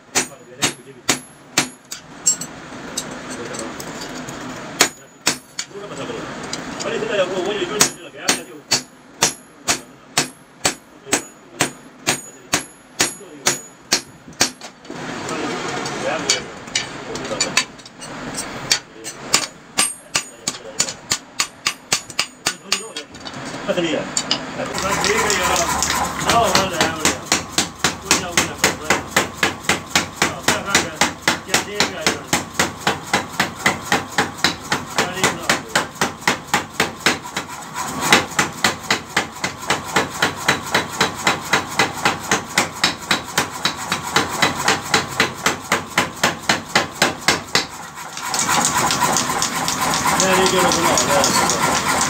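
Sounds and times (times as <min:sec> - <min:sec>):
power hammer pounding metal: 0:00.0 - 0:03.8, 0:04.7 - 0:23.2, 0:24.2 - 0:52.0.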